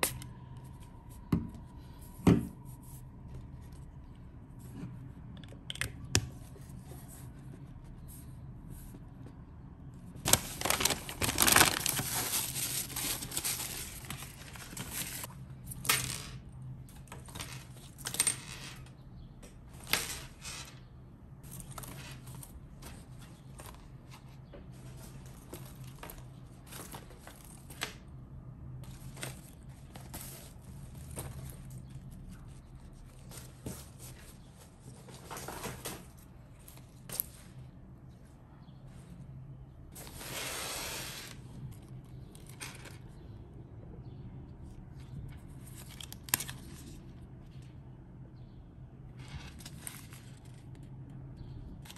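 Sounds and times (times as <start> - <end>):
items set down on desk: 2.2 - 2.6
plastic packaging crinkling: 10.3 - 15.3.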